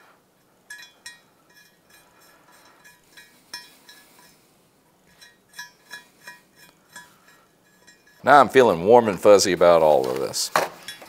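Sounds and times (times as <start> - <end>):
light metallic clinks: 0.4 - 8.2, 10.8 - 11.0.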